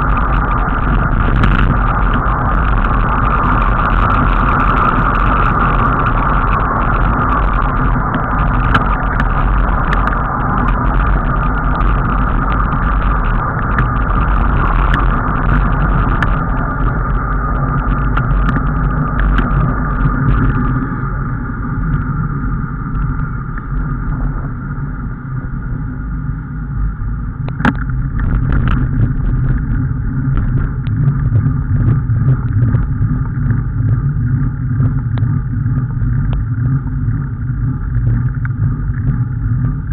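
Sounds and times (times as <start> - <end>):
vehicle travel rumble: 0.0 - 39.9.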